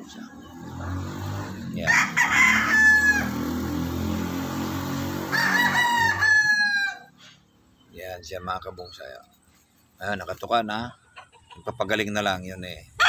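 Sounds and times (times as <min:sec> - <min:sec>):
rooster crowing: 0:01.8 - 0:04.0, 0:04.9 - 0:07.2.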